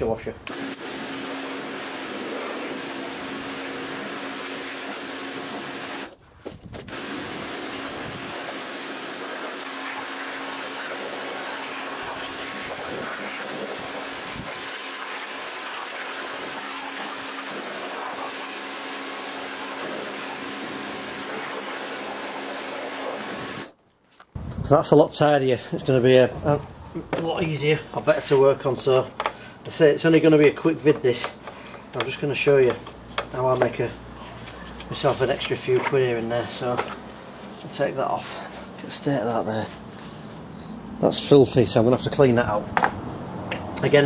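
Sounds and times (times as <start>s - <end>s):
pressure washer spraying: 0.5s - 6.2s, 6.9s - 23.8s.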